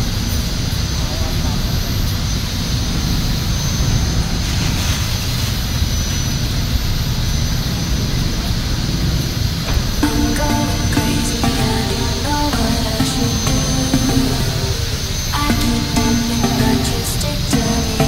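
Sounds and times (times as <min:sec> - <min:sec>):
workshop machine roar: 0:09.0 - 0:18.0
music: 0:10.0 - 0:18.0.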